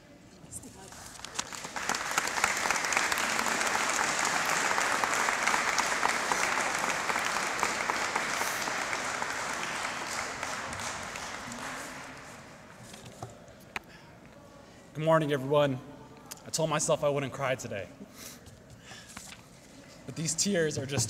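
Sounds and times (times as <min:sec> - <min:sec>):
crowd applauding: 0:01.1 - 0:12.7.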